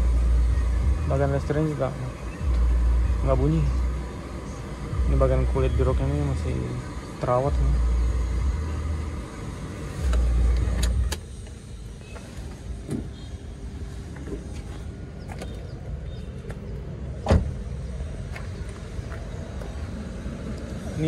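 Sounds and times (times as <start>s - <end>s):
rumbling handling noise in car: 10.0s - 13.3s, 14.0s - 20.6s.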